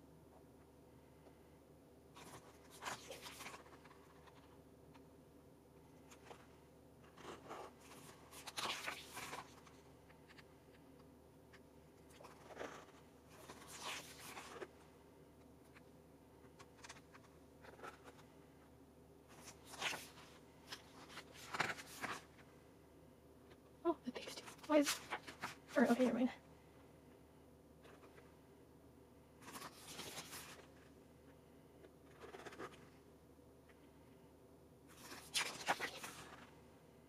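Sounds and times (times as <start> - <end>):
paper pages turning: 2.2 - 5.0, 6.0 - 10.5, 11.5 - 14.8, 15.6 - 18.3, 19.3 - 22.5, 24.2 - 26.2, 27.8 - 28.3, 29.4 - 30.9, 32.0 - 33.0, 34.9 - 36.5.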